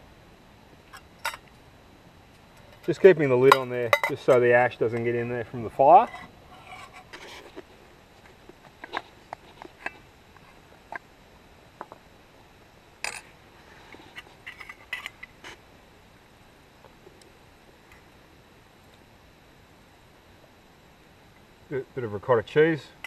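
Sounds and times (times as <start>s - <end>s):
knife and spoon on metal cookware: 6.0s - 7.6s.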